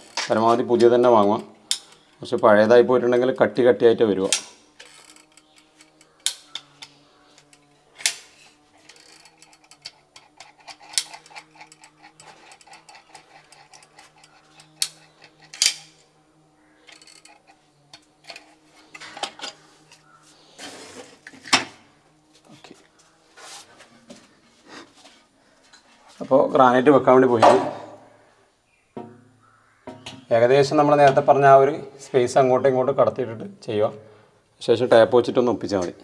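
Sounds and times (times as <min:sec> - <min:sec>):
caulking gun metallic clicks: 0:01.3 - 0:02.4.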